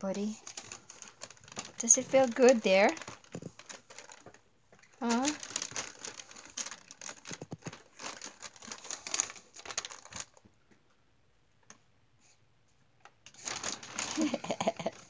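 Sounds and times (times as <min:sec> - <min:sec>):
plastic bag crinkling: 0:00.3 - 0:10.4, 0:13.3 - 0:15.0.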